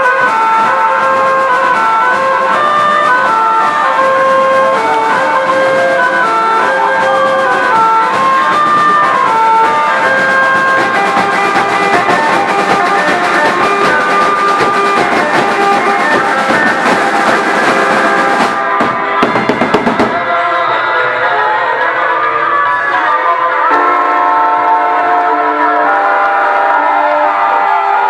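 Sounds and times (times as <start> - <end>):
drums beating: 0.0 - 21.1
marching band playing: 0.0 - 22.3
wind instruments holding notes: 0.0 - 28.0.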